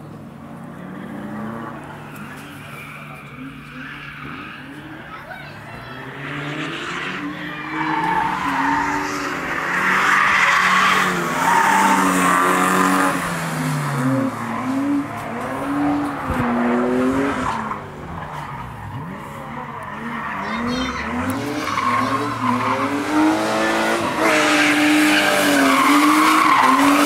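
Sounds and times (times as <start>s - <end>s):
car engine revving: 0.0s - 27.0s.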